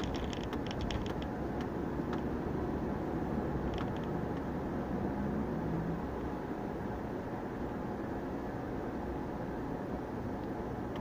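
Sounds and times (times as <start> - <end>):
light interior rattle clicks: 0.0 - 2.2, 3.6 - 4.2
car road and engine noise: 0.0 - 11.0.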